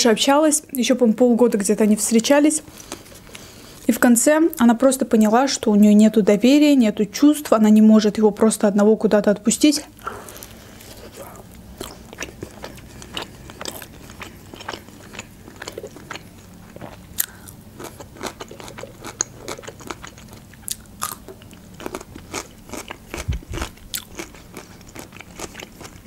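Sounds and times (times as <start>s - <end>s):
chewing soft bread: 9.9s - 26.0s.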